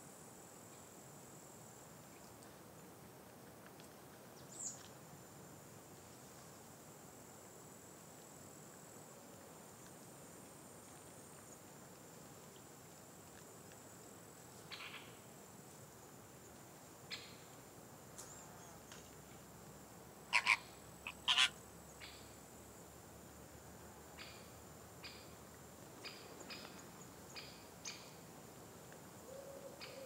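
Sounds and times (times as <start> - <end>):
faint high-pitched whine: 0.0 - 30.0
flamingos calling: 20.3 - 21.6.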